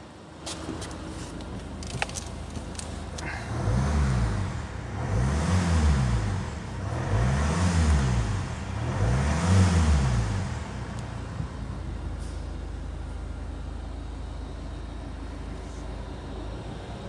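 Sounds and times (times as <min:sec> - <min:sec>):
diesel engine revving and idling: 0:00.8 - 0:17.0.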